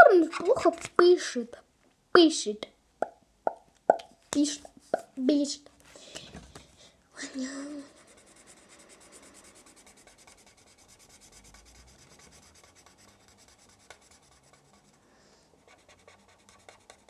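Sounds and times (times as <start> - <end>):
marker scratching on paper: 0.0 - 1.1, 7.8 - 15.0, 15.6 - 17.0.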